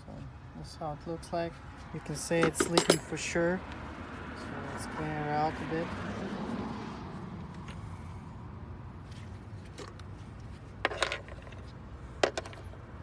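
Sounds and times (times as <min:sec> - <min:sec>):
metal hand tools clinking: 0:02.4 - 0:03.3.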